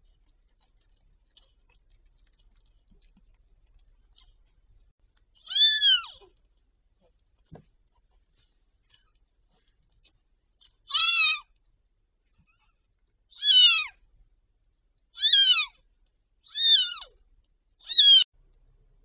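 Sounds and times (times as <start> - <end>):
kitten mewing: 5.4 - 6.3, 10.9 - 11.5, 13.4 - 14.0, 15.2 - 15.8, 16.5 - 17.2, 17.8 - 18.2.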